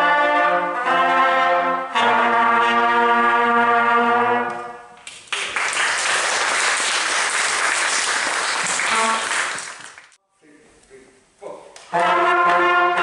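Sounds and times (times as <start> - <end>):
brass ensemble holding chord: 0.0 - 4.8, 11.9 - 13.0
audience applause: 5.2 - 10.2.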